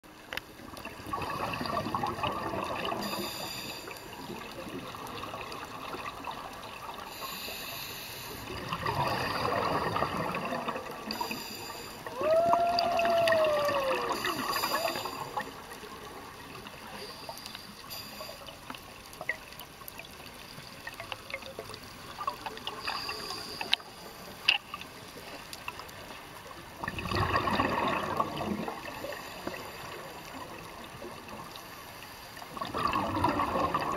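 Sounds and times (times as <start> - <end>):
bubbly underwater exhalations: 1.0 - 3.2, 8.5 - 11.3, 26.8 - 29.0, 32.6 - 33.9
regulator hissing inhalations: 3.0 - 4.2, 7.1 - 8.6, 11.1 - 12.1, 14.1 - 15.4, 16.9 - 18.6.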